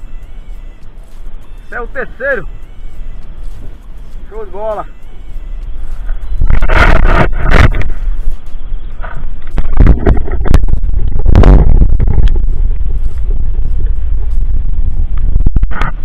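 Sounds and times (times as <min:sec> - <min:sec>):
wind buffeting microphone: 0:05.6 - 0:16.0.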